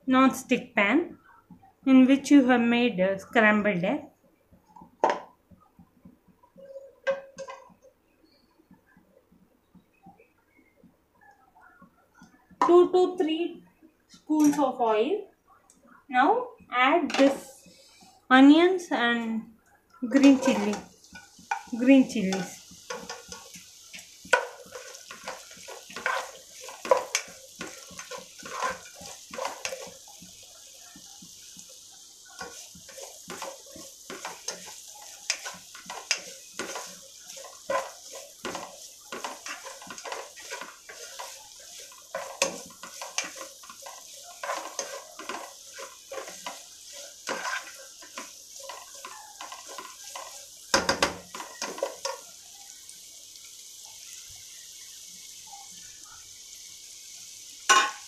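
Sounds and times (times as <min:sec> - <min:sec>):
onions sizzling in oil: 0:00.0 - 0:10.6, 0:11.2 - 0:58.0
spatula scraping pan: 0:20.1 - 0:52.3.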